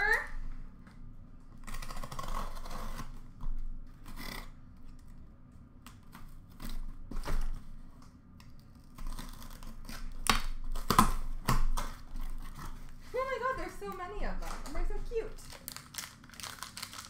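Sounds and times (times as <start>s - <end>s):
cardboard rustling and scraping: 8.8s - 15.5s.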